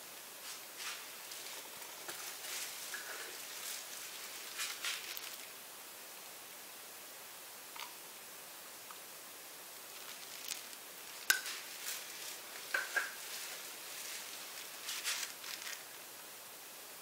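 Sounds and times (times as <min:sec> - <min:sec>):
faint steady hiss: 0:00.0 - 0:17.0
gloved hand rustling: 0:00.5 - 0:05.6, 0:09.8 - 0:16.1
paint cups clicking and tapping: 0:10.4 - 0:11.7, 0:12.6 - 0:13.4.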